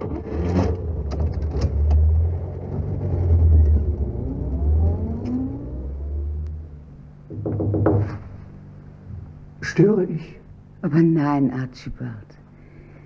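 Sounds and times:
car engine rumble: 0.0s - 9.6s.

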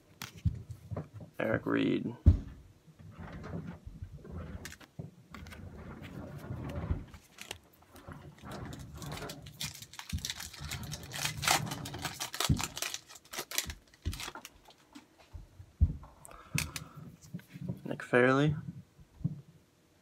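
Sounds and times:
cards clicking and rustling: 7.2s - 7.6s, 9.4s - 15.1s.

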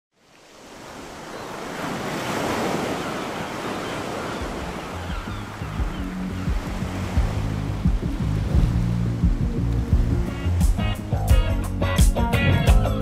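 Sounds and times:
sea waves washing onto beach: 0.1s - 11.2s
low bass music: 5.6s - 13.0s.

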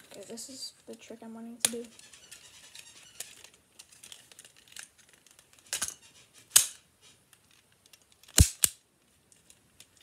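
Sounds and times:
plastic toy gun clicking: 7.8s - 8.8s
toy gun snaps: 8.2s - 8.8s.

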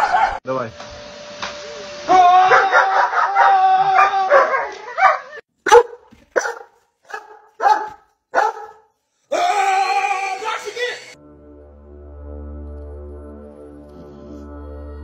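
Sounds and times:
dog howling: 1.7s - 5.4s
dog barking: 2.5s - 8.9s.

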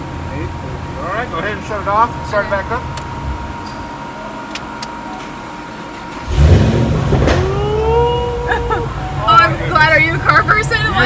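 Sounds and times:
car engine rumbling: 0.0s - 11.0s
engine whine rising in pitch: 5.3s - 11.0s.

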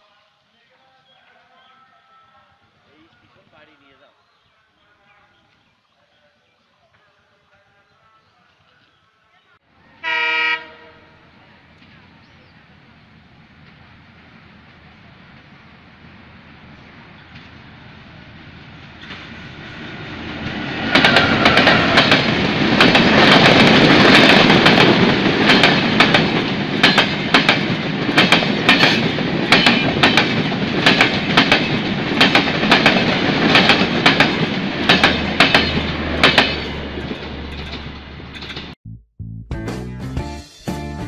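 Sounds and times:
train wheels roaring on rail: 9.9s - 38.8s
clickety-clack over rail joints: 20.8s - 38.8s.

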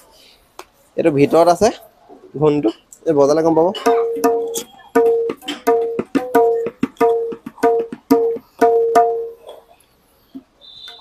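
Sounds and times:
tabla drum strokes: 3.7s - 9.6s.

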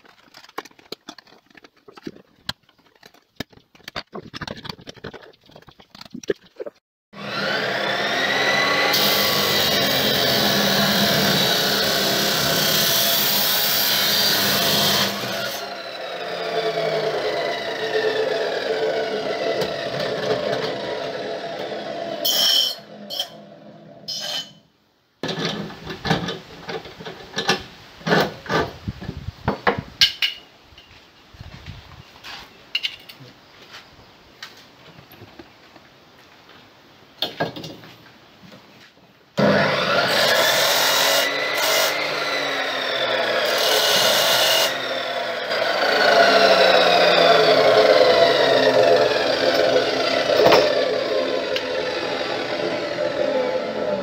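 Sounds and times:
cut-off saw motor: 7.2s - 23.6s, 39.4s - 54.0s
saw disc grinding through steel: 7.2s - 24.6s, 39.4s - 54.0s.

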